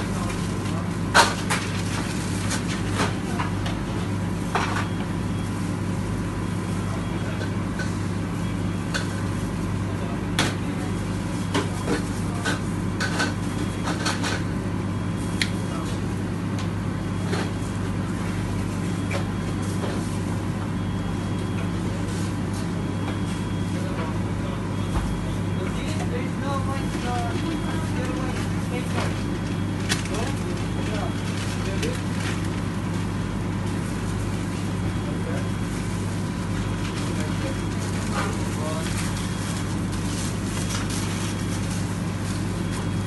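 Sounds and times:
kitchen equipment electrical hum: 0.0s - 43.0s
paper crinkling and tapping: 28.9s - 32.7s.

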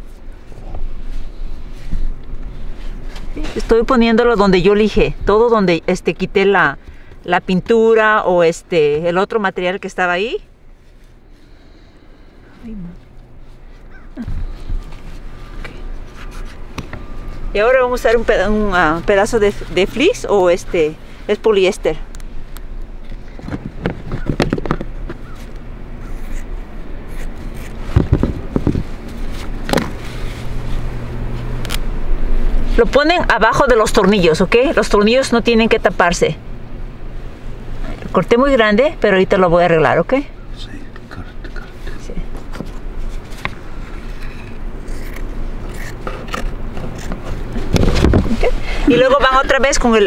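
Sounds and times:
gloved hand rubbing and scraping: 0.0s - 3.6s, 13.0s - 20.2s, 24.8s - 31.6s, 41.7s - 50.0s
steady low hum: 0.0s - 50.0s
scissors snipping fabric: 44.8s - 47.2s.

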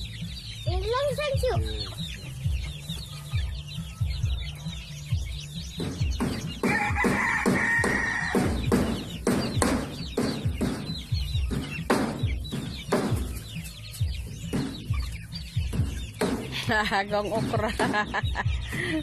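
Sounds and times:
chickens clucking: 0.0s - 19.0s
drawn-out chicken call: 6.6s - 8.7s.

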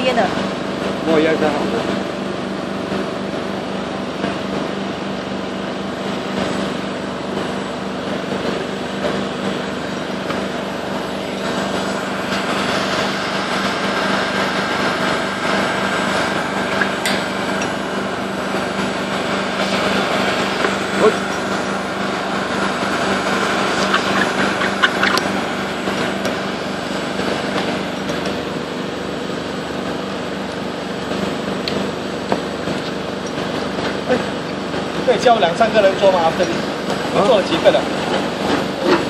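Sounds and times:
high steady whine: 0.0s - 39.0s
heat gun blowing air: 9.1s - 28.9s.

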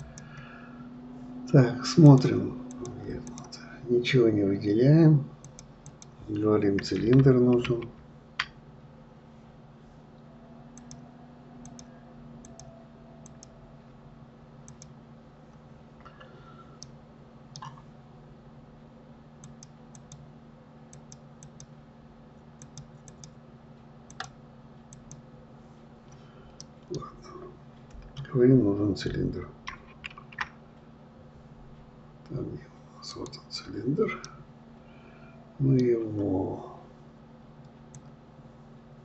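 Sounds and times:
computer mouse clicks: 0.0s - 0.5s, 2.1s - 3.6s, 5.4s - 6.2s, 10.8s - 11.0s, 11.6s - 13.5s, 14.6s - 14.9s, 17.5s - 17.8s, 19.4s - 20.2s, 20.9s - 21.7s, 22.6s - 23.4s, 24.1s - 25.2s, 37.9s - 38.1s
steady low hum: 0.0s - 39.0s
keyboard keypresses: 11.6s - 13.5s, 14.7s - 14.9s, 22.6s - 23.4s, 24.1s - 25.2s.

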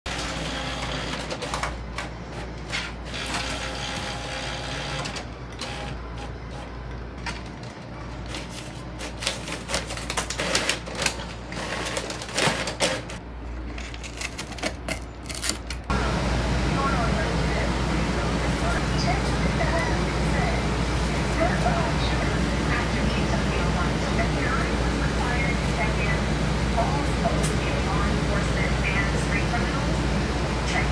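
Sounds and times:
inkjet printer printing: 0.1s - 7.0s, 15.9s - 30.9s.

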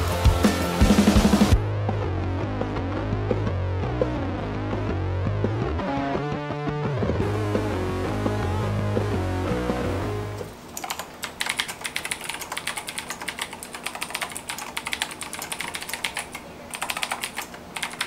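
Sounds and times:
background music: 0.0s - 10.5s
fast clicky keyboard typing: 10.7s - 18.0s.

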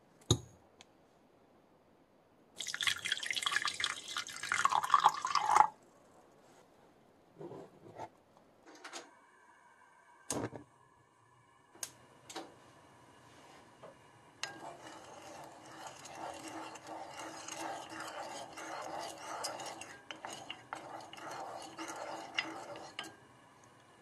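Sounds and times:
spatula scraping a saucepan: 14.4s - 23.2s.

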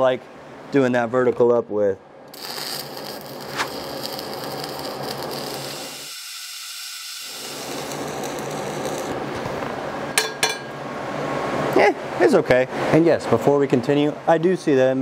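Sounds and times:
welding arc crackling and sizzling: 2.3s - 9.8s.

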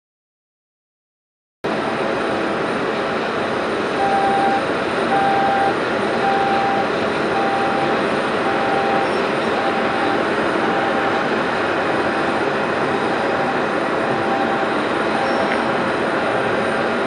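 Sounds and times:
jet engine noise: 1.6s - 17.0s
short warning beeps: 4.0s - 11.3s, 13.2s - 15.7s.

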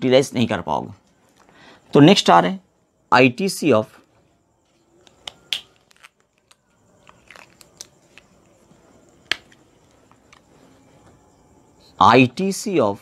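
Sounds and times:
marker handling clicks: 9.2s - 9.6s.

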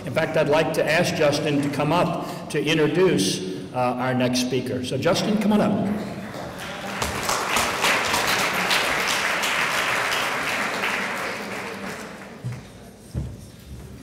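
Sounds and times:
audience applauding: 6.0s - 12.7s.

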